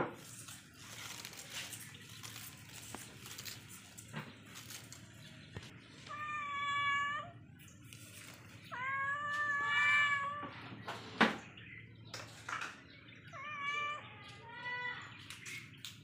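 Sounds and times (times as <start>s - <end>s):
young cat meowing: 6.1s - 7.4s, 8.6s - 10.6s, 13.3s - 15.0s.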